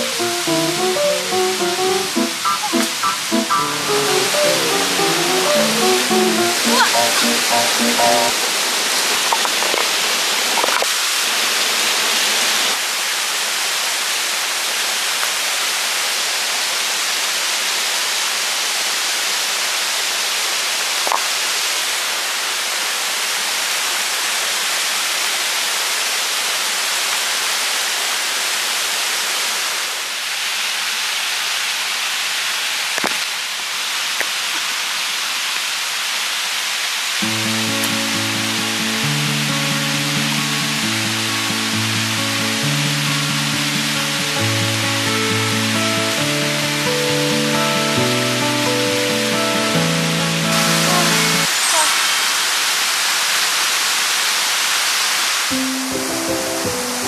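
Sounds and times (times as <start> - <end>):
water rushing over rocks: 0.0 - 28.3.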